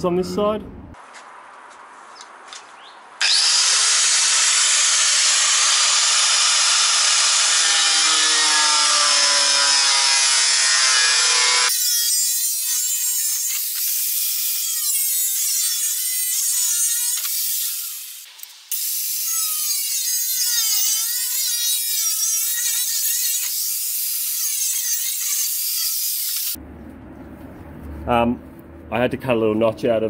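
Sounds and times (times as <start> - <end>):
angle grinder cutting plastic: 3.2 - 26.6.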